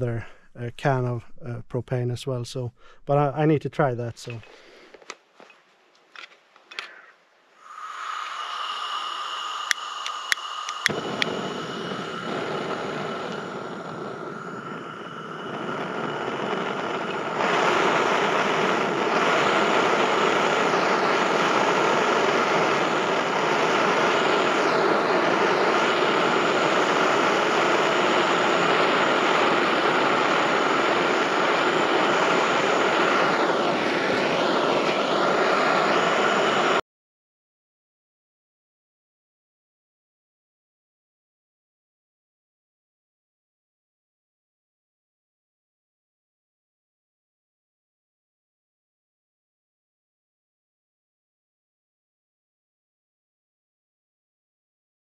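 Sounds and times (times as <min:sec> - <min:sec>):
propane torch roaring: 0:07.5 - 0:36.8
sharp clicks: 0:09.6 - 0:11.3.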